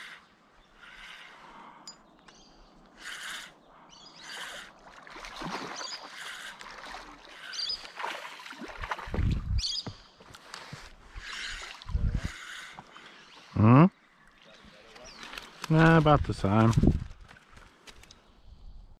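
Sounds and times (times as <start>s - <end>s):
fish splashing in water: 4.3s - 9.4s.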